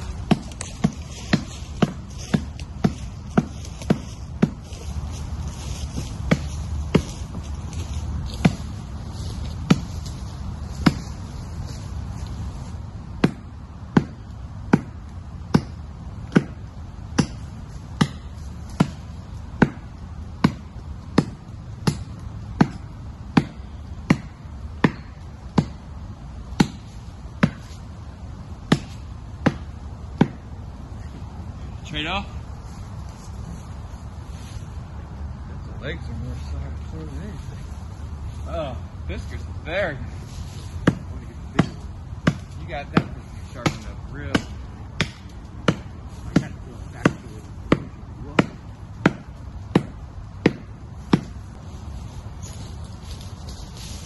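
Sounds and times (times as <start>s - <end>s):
axe chopping into tree: 0.1s - 4.8s, 5.9s - 7.4s, 8.3s - 8.8s, 9.6s - 10.1s, 10.8s - 11.2s, 13.2s - 27.8s, 28.6s - 30.4s, 40.8s - 51.4s.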